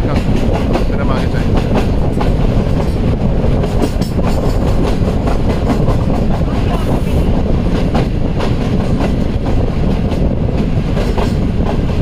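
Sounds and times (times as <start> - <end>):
train running rumble: 0.0 - 12.0.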